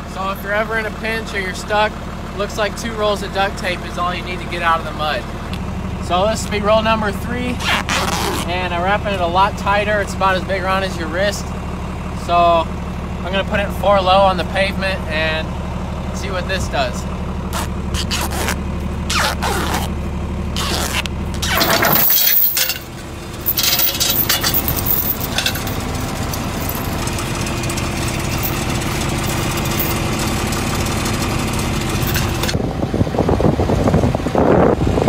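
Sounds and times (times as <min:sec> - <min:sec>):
engine idling: 0:00.0 - 0:35.0
duct tape ripping off roll: 0:07.6 - 0:08.5, 0:17.5 - 0:19.9, 0:20.6 - 0:21.8
chain and pipe clinking: 0:21.4 - 0:27.2, 0:28.0 - 0:30.2, 0:32.0 - 0:32.6.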